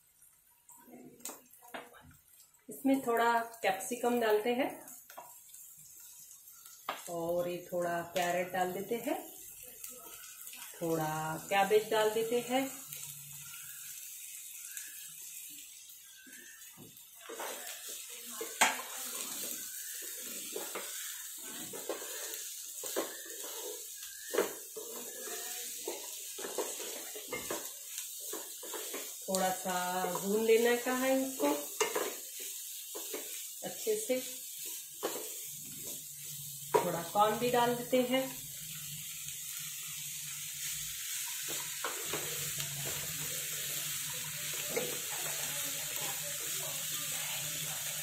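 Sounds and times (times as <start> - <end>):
vegetables sizzling in oil: 0.0 - 48.0
wooden spatula scraping and knocking: 18.5 - 29.2.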